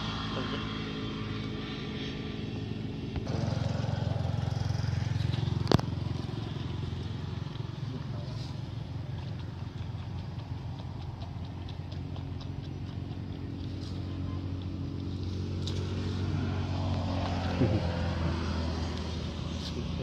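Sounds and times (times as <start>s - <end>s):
motor engine running: 0.0s - 20.0s.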